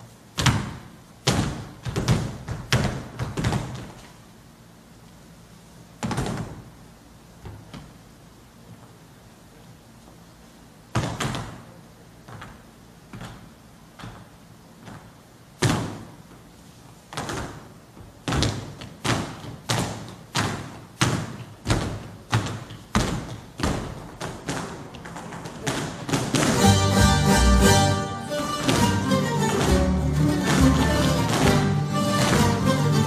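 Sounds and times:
dancers' percussive strikes: 0:25.7 - 0:33.0.

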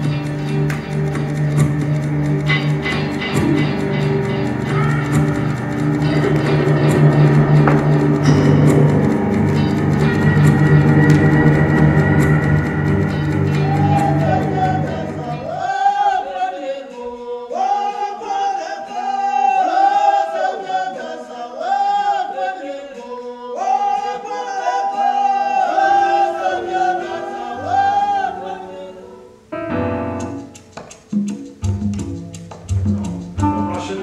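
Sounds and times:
bass-heavy band music: 0:00.0 - 0:15.6
different piece of music: 0:00.0 - 0:20.9, 0:23.6 - 0:34.0
group of voices singing: 0:03.0 - 0:29.4.

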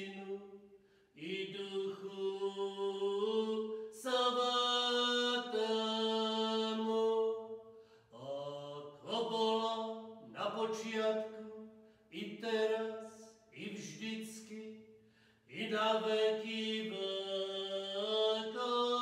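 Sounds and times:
man chanting: 0:08.2 - 0:11.6.

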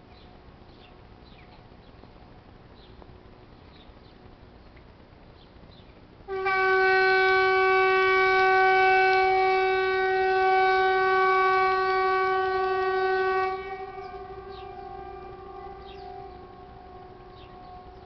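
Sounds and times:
outdoor warning siren steady tone: 0:06.3 - 0:18.0.

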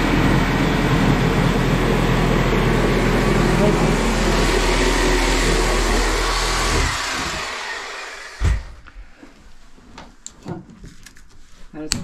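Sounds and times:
angle grinder spinning down: 0:00.0 - 0:08.7
thump: 0:08.4 - 0:08.8.

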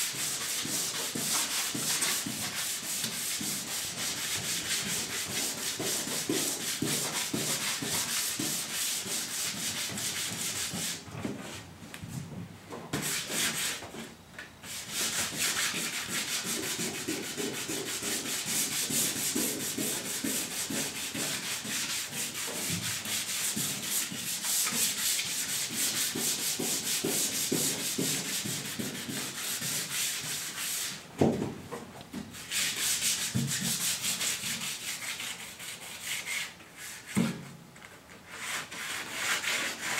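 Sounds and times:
sandpaper rasping on metal: 0:38.3 - 0:39.9.

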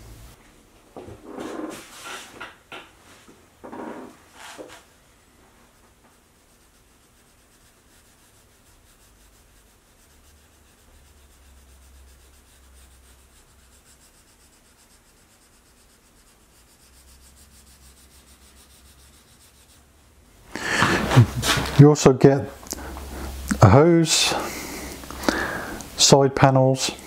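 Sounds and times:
pencil scratching on paper: 0:05.8 - 0:19.9.

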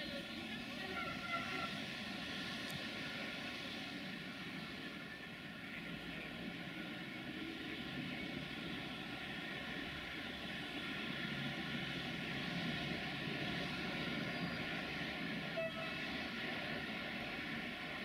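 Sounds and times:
faint steady tones: 0:00.0 - 0:18.0
train rumbling: 0:00.0 - 0:18.0.

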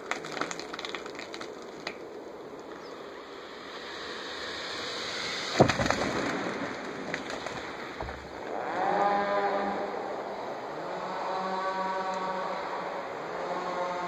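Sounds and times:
pitched droning sound: 0:02.8 - 0:14.0
branches crackling and swishing: 0:02.9 - 0:09.2
tree top crashing down: 0:05.5 - 0:08.6.

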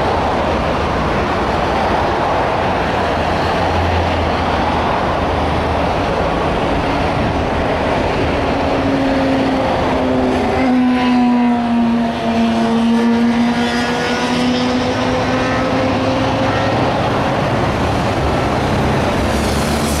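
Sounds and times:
busy freeway traffic: 0:00.0 - 0:20.0
passing vehicle droning hum: 0:00.0 - 0:20.0.

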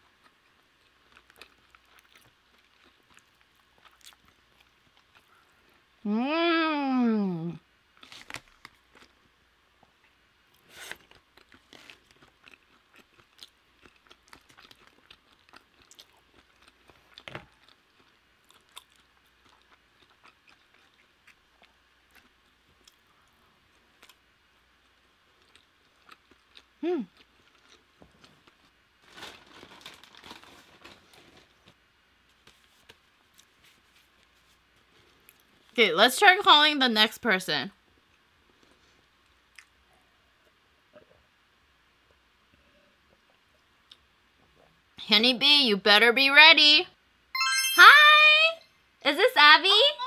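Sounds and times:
person humming: 0:06.0 - 0:07.6
mouth clicks and smacks chewing: 0:11.1 - 0:23.0.

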